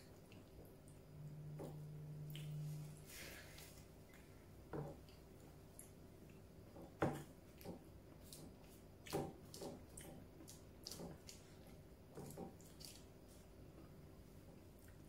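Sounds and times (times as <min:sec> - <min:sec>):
chewing with wet mouth clicks: 0:02.2 - 0:02.7, 0:07.2 - 0:13.1.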